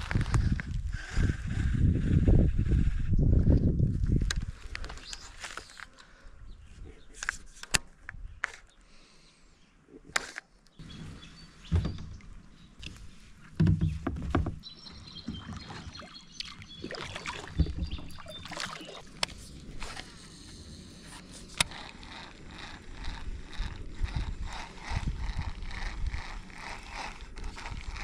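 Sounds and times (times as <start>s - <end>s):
kayak and paddle knocks and scrapes: 10.2s - 21.6s
dull thuds from kayak hull: 11.6s - 12.4s, 13.6s - 14.6s.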